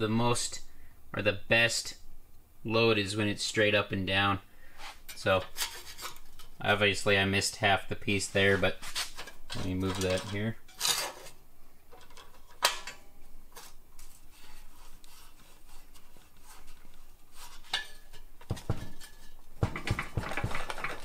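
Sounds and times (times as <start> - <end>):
steel bar and clamp clanking: 9.0 - 13.0, 17.6 - 21.0.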